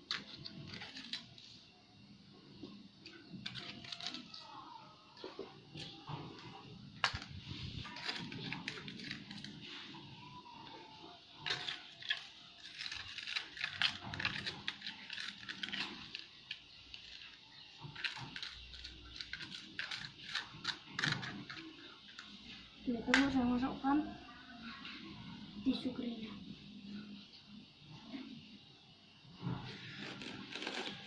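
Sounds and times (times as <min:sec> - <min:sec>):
plastic crinkling: 0:03.1 - 0:04.5, 0:05.3 - 0:10.0, 0:11.4 - 0:22.4
spoon scraping in plastic cup: 0:11.4 - 0:22.4, 0:29.6 - 0:31.0.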